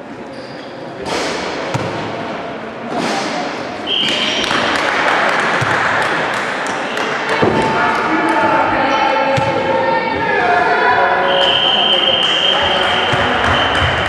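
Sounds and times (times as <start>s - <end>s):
players' voices: 0.0s - 14.0s
shoe squeaks: 0.2s - 1.0s, 3.9s - 4.5s.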